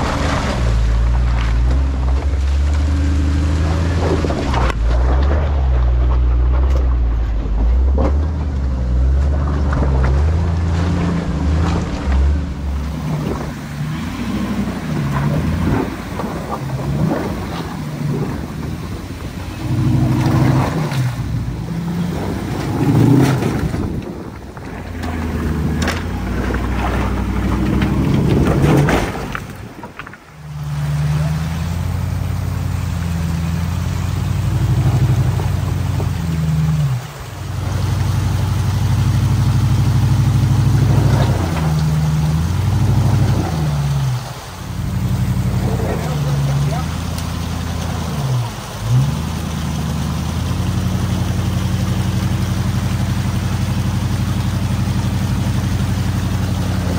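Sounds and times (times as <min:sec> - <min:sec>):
truck engine crawling: 0:00.0 - 0:56.9
rocks knocking under tyres: 0:22.3 - 0:30.7.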